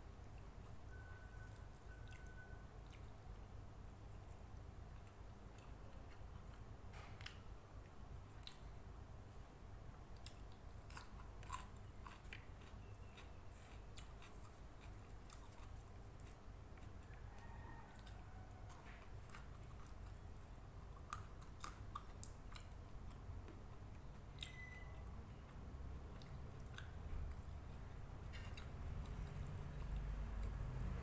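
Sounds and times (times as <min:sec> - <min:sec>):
person chewing food: 0:00.2 - 0:08.8, 0:10.1 - 0:30.7.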